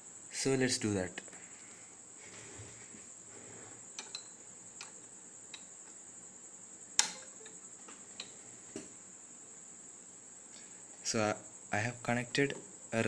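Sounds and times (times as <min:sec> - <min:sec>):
steady high-pitched tone: 0:07.0 - 0:08.3
light clicks and taps: 0:07.0 - 0:08.9.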